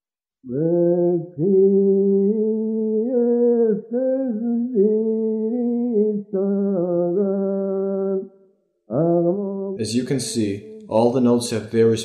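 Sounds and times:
man singing chant: 0:00.5 - 0:08.3.

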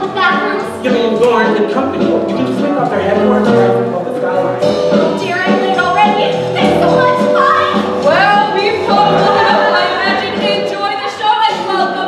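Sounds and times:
cast voices singing: 0:00.0 - 0:04.7
instrumental accompaniment: 0:00.0 - 0:12.0.

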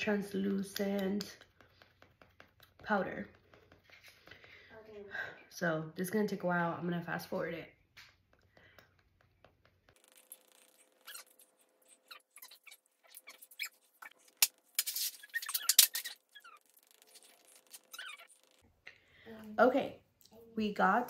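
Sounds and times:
sponge dabbing on skin: 0:00.4 - 0:04.4, 0:08.1 - 0:18.6.

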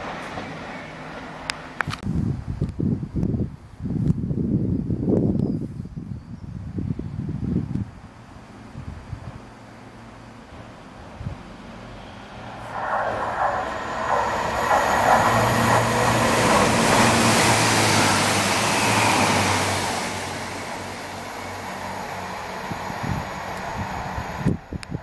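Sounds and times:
diesel train engine hum: 0:00.0 - 0:02.0, 0:08.0 - 0:25.0
train wheels on rails: 0:00.0 - 0:02.0, 0:10.5 - 0:25.0.

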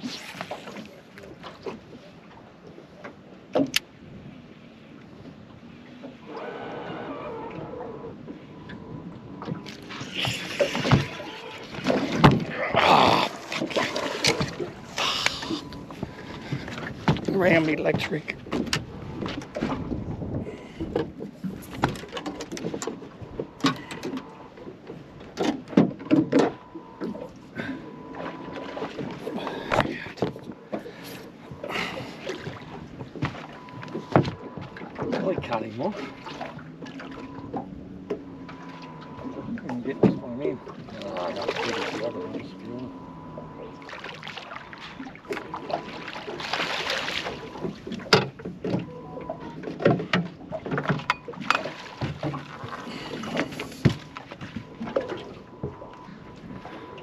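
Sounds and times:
water splashing: 0:00.0 - 0:03.9, 0:05.8 - 0:57.0
faint steady whine: 0:35.7 - 0:49.7, 0:51.0 - 0:57.0.

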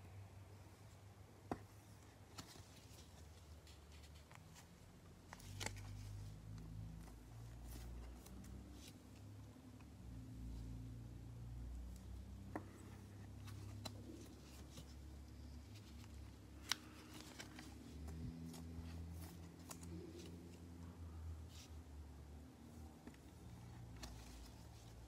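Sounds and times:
cards sliding: 0:05.3 - 0:06.2, 0:12.4 - 0:20.6
light clicks of cards: 0:11.7 - 0:20.7.

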